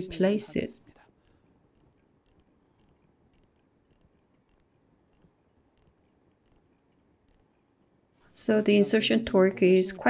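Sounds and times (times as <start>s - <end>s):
ratchet wrench clicks: 1.2s - 7.6s.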